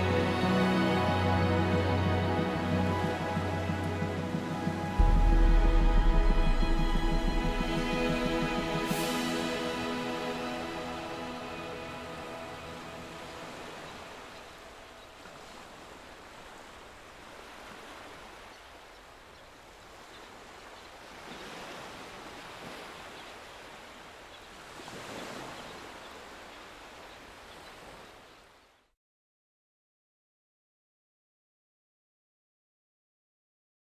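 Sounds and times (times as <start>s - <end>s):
music track: 0.0s - 13.4s
waves breaking: 0.0s - 28.6s.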